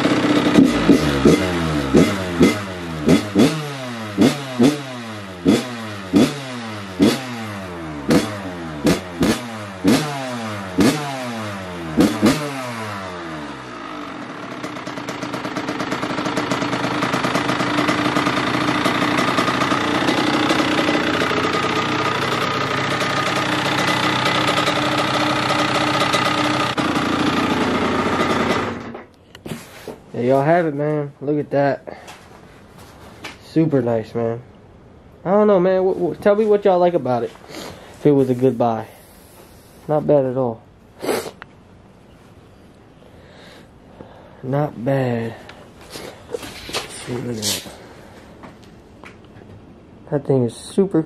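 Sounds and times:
dirt bike engine revving: 0.0s - 29.1s.

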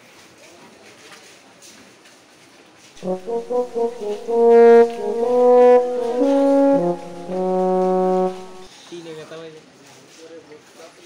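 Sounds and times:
brass horn melody: 3.0s - 8.7s.

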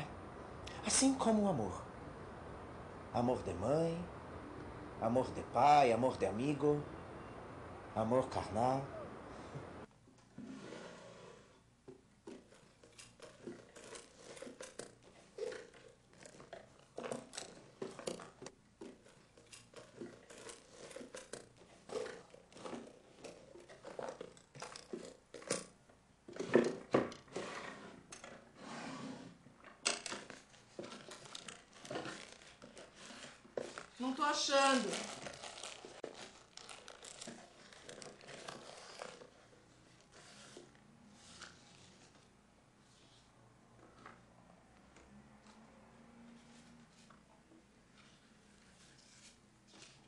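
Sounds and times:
objects rummaged in a drawer: 12.2s - 28.6s, 29.6s - 40.7s.

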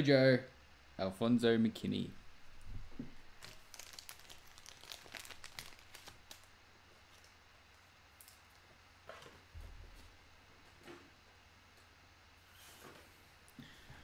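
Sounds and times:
plastic packaging crinkling: 3.3s - 7.3s.

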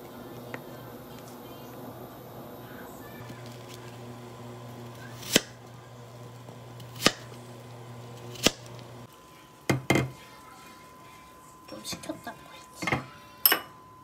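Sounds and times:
knife slicing an apple: 5.1s - 5.6s, 6.8s - 7.4s, 8.2s - 8.7s.

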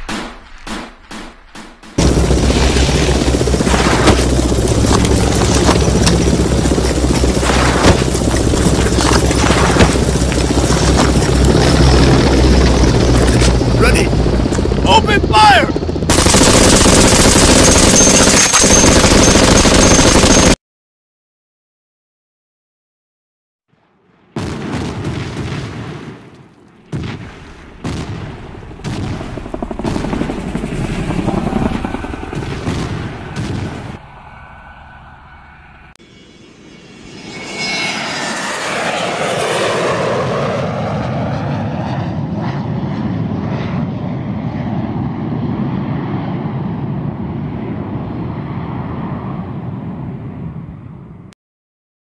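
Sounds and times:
gunshots: 0.0s - 12.0s, 16.1s - 20.6s
explosions booming: 0.0s - 13.7s, 24.1s - 31.1s, 32.3s - 34.1s
rapid automatic gunfire: 0.1s - 12.2s, 16.1s - 20.6s
deep rumble: 2.0s - 14.9s
low engine drone: 2.0s - 17.6s, 34.0s - 43.4s.

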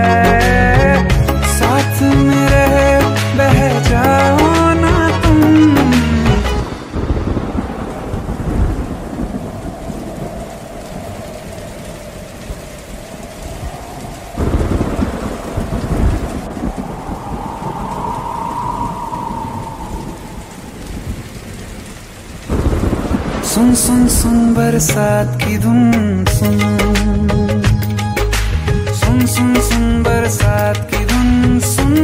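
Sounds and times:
steady rain: 0.0s - 32.0s
rolling thunder: 6.5s - 25.2s
thunderclap: 6.5s - 25.2s.

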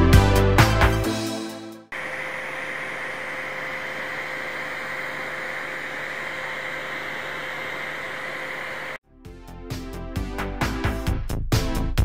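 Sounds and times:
small fan running: 1.9s - 9.0s.

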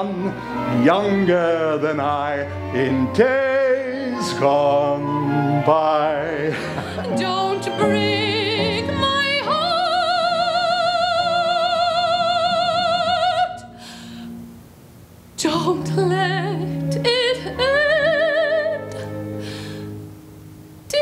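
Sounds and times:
woman singing with vibrato: 6.9s - 13.9s, 15.4s - 19.2s.

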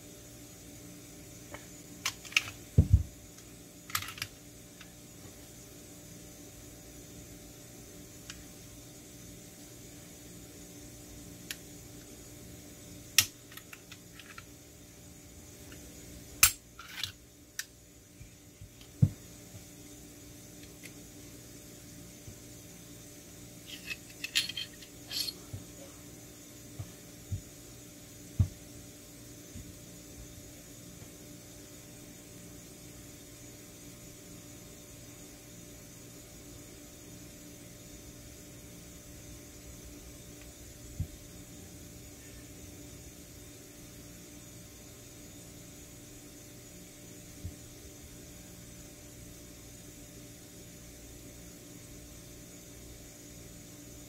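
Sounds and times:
part thumping on cloth table: 2.8s - 3.1s.

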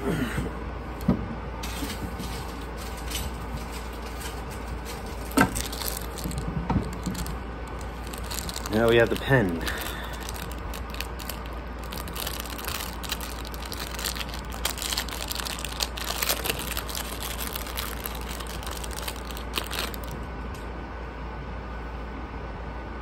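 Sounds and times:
steady low hum: 0.0s - 23.0s
plastic wrapper crinkling: 1.7s - 20.3s.

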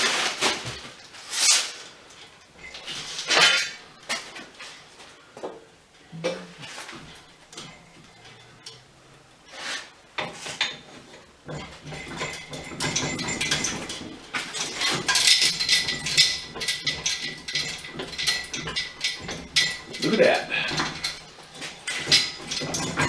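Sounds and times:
metal chain clinking: 2.5s - 3.9s, 6.6s - 8.9s, 10.6s - 23.0s.

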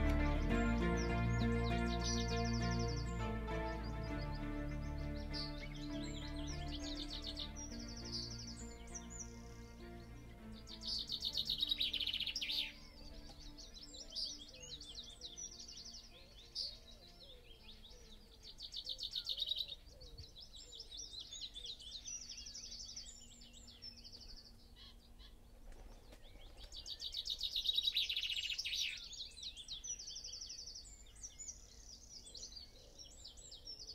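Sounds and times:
loud rapid bird trill: 0.0s - 17.4s
songbirds singing: 0.0s - 33.9s.

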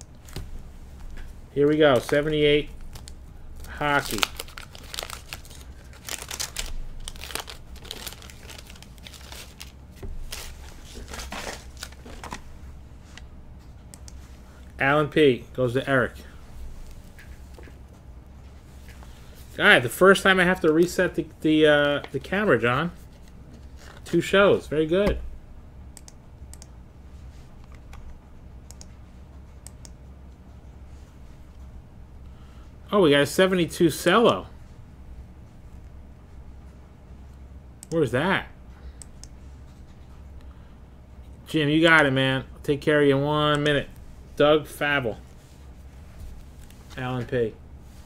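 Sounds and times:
low steady hum: 0.0s - 48.0s
wax paper wrapper crinkling: 1.1s - 12.5s, 22.9s - 24.2s.

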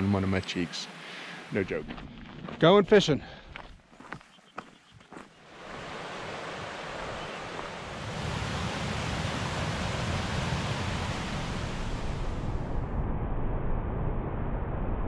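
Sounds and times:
rushing noise: 5.5s - 15.0s
low rumble: 9.4s - 15.0s.

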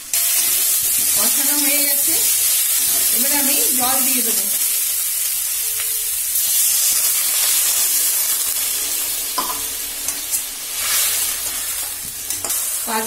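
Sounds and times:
food sizzling in oil: 0.0s - 13.0s
metal spatula stirring: 8.8s - 12.8s.

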